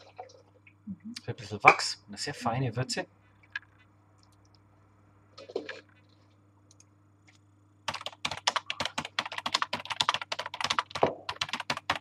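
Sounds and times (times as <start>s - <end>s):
fast typing on keyboard: 7.9s - 12.0s.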